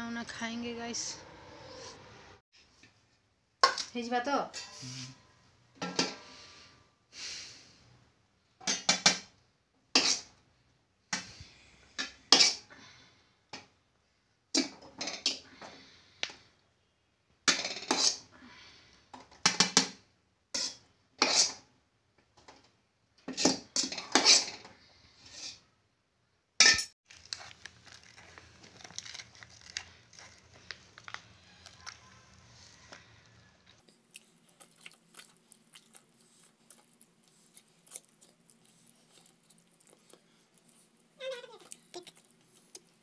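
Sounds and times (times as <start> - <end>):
hand mixing food squishing: 27.1 - 43.0.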